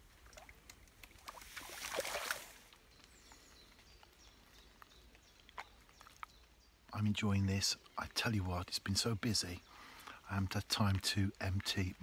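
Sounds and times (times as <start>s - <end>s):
water splashing: 0.0s - 2.8s.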